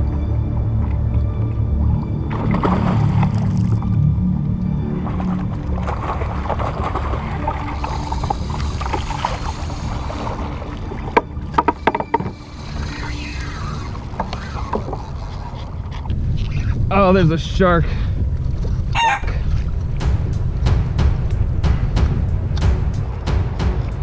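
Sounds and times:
water sloshing around kayak: 0:00.0 - 0:16.9, 0:18.0 - 0:20.7
paddle knocking hull: 0:04.8 - 0:13.1, 0:19.2 - 0:24.0
wind on microphone: 0:11.8 - 0:24.0.

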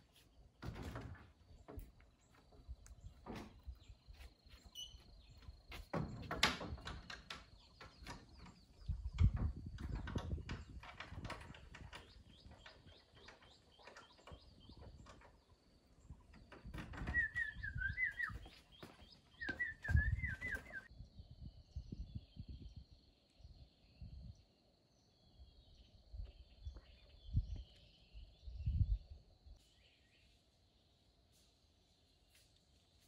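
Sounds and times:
birds chirping: 0:00.0 - 0:30.4
soft knocks and thumps: 0:05.7 - 0:15.5, 0:16.1 - 0:20.9.

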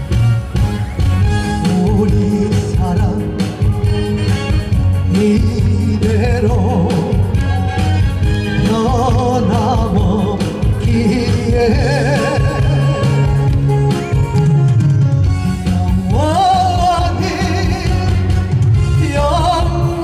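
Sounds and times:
instrumental accompaniment: 0:00.0 - 0:20.0
man singing a ballad: 0:01.6 - 0:03.7, 0:05.0 - 0:07.8, 0:08.5 - 0:13.5, 0:16.0 - 0:20.0.

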